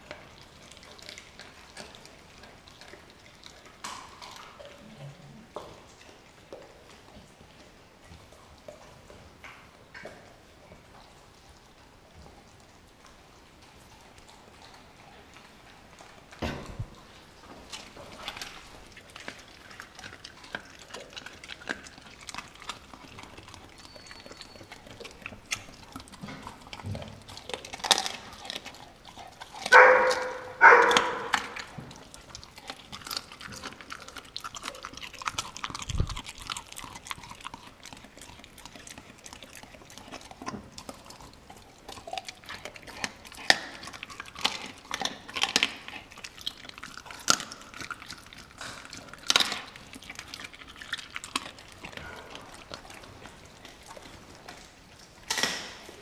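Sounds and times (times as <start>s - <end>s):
dogs chewing with crunching: 0.0s - 56.0s
dog barks: 29.6s - 31.6s.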